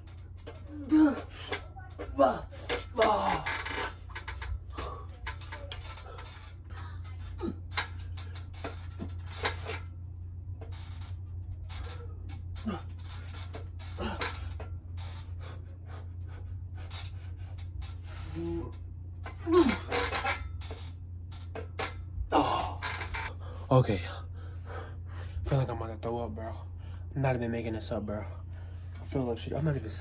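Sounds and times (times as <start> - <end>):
steady low hum: 0.0 - 30.0
person grunting: 0.7 - 1.4, 2.2 - 3.5, 22.3 - 22.8.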